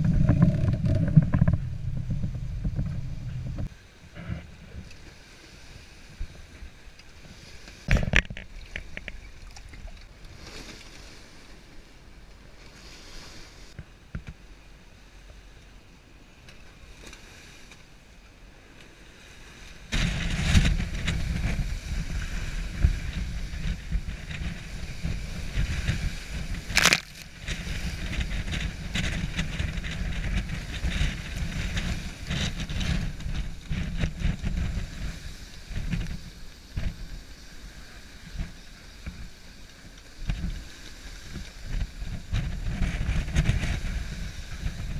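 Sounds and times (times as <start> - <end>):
wave slapping: 0.0 - 3.7, 19.7 - 44.9
wind rushing: 0.0 - 3.7
wind buffeting microphone: 0.0 - 4.9, 19.8 - 39.5, 40.1 - 44.9
waves washing along hull: 0.0 - 44.9.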